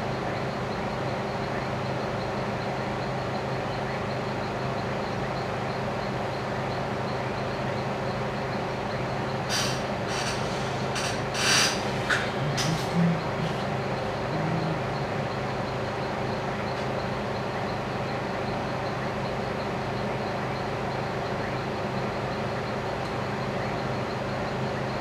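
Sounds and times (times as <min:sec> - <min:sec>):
mechanical hum with hiss: 0:09.5 - 0:14.9.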